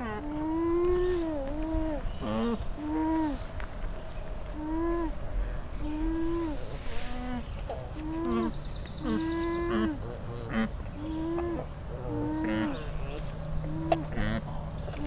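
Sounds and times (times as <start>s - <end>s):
alpacas humming: 0.0s - 3.5s, 4.4s - 15.0s.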